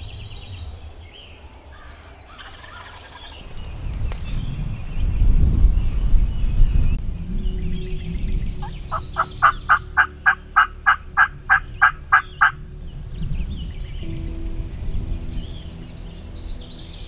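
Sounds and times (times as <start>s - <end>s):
wild turkey yelping: 8.6s - 12.6s.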